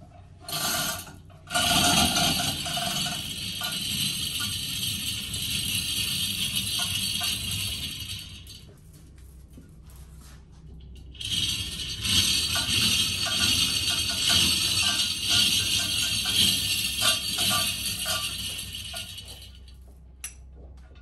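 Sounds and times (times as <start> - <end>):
chains rattling and clinking: 1.5 - 8.6, 11.2 - 19.9.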